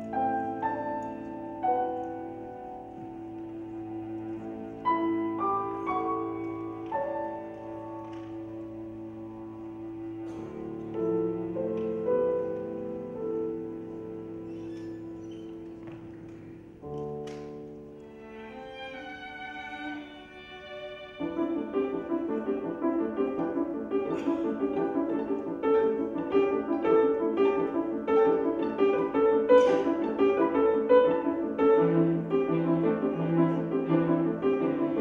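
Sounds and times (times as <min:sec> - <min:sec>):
instrumental music: 0:00.0 - 0:35.0.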